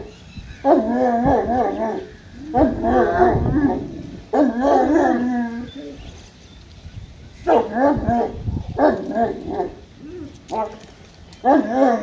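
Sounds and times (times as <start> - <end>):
dog barking loudly: 7.5 - 9.7.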